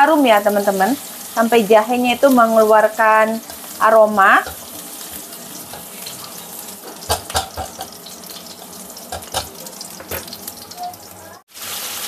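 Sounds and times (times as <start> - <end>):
garlic sizzling in hot oil: 0.0 - 12.0
spatula knocking against pan: 6.8 - 8.0, 9.1 - 9.5.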